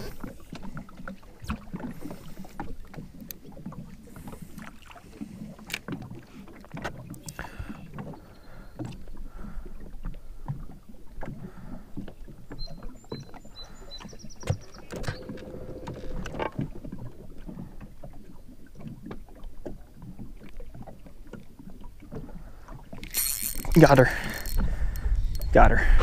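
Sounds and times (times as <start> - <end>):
waves lapping against boat hull: 0.0 - 26.0
light wind: 13.6 - 26.0.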